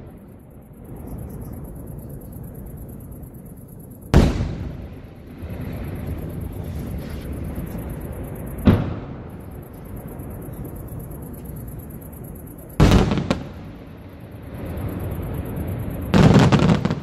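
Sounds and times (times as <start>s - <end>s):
firework booms: 4.1s - 6.4s, 8.6s - 9.4s, 12.8s - 13.8s, 16.1s - 17.0s.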